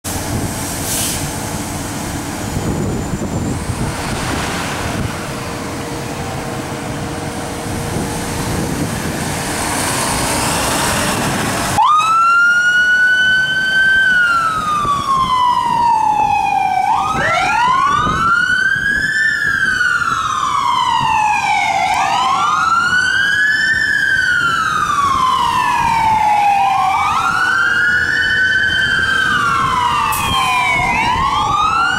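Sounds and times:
fire engine pulling away: 0:00.1 - 0:31.9
wailing electronic siren: 0:02.6 - 0:06.4, 0:09.8 - 0:31.9
second wailing siren: 0:10.5 - 0:31.9.

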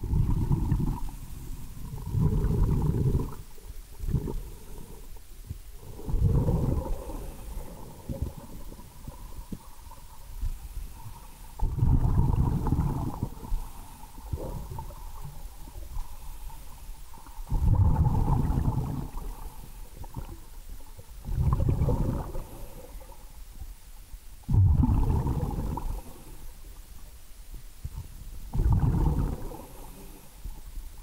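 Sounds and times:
exhaled breath bubbling underwater: 0:00.0 - 0:05.2, 0:05.8 - 0:09.6, 0:10.4 - 0:16.4, 0:17.5 - 0:20.4, 0:21.2 - 0:23.2, 0:24.5 - 0:26.4, 0:28.0 - 0:30.3
faint steady tone: 0:00.0 - 0:31.0.

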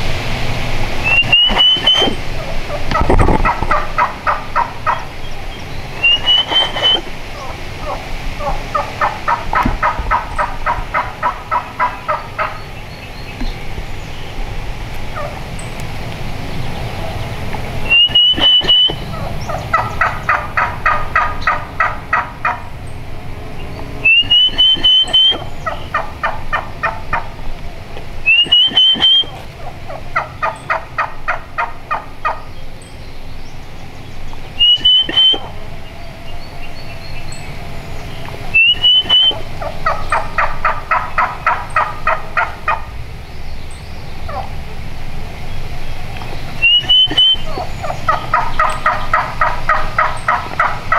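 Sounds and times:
rising whistled note: 0:01.0 - 0:02.3, 0:06.0 - 0:07.1, 0:17.9 - 0:19.1, 0:24.0 - 0:25.5, 0:38.5 - 0:39.5
turkey yelps: 0:01.0 - 0:12.7, 0:15.1 - 0:15.5, 0:17.9 - 0:22.7, 0:24.0 - 0:27.4, 0:28.2 - 0:32.5, 0:34.6 - 0:35.7, 0:38.3 - 0:42.9, 0:44.3 - 0:44.6, 0:46.5 - 0:50.9.

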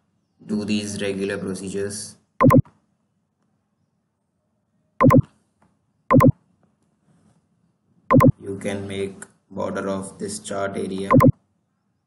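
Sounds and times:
computer mouse clicks: 0:05.0 - 0:05.3, 0:06.1 - 0:06.3, 0:08.1 - 0:08.3, 0:11.1 - 0:11.3.

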